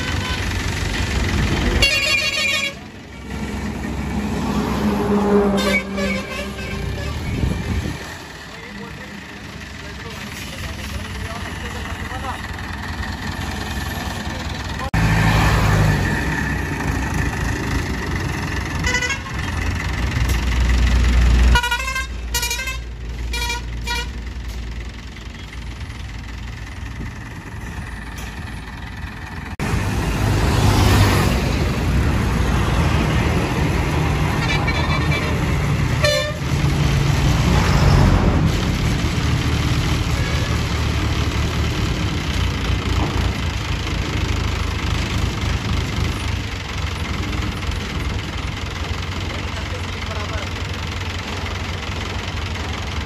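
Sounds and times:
vehicle horn toots: 0.0 - 0.5, 1.8 - 2.9, 5.3 - 7.4, 18.8 - 19.4, 21.5 - 24.2, 36.0 - 36.5
heavy vehicle engine running: 0.0 - 53.0
highway traffic passing: 0.0 - 53.0.

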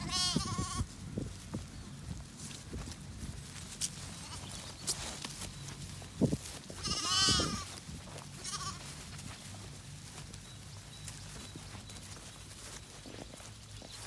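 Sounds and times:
lamb bleating: 0.0 - 0.9, 4.0 - 4.8, 6.7 - 9.0.

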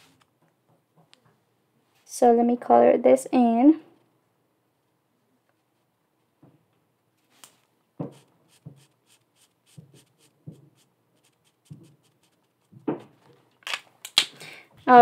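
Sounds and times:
marker scratching on paper: 8.0 - 13.1.

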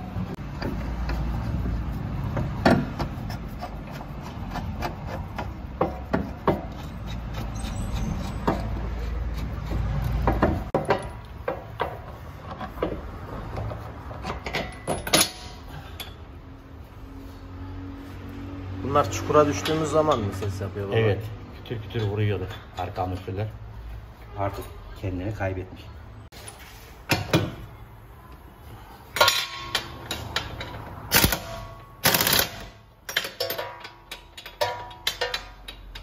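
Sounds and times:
hand tools knocking on metal: 2.2 - 15.5, 33.1 - 36.0.

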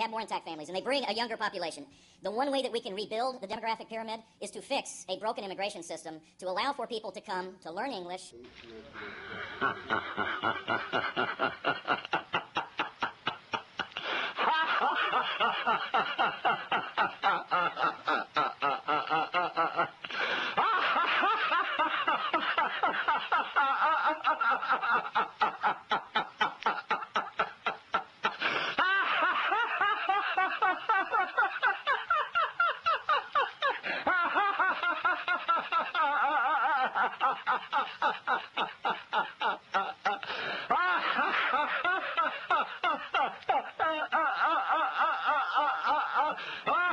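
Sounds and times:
person laughing: 9.0 - 46.9.

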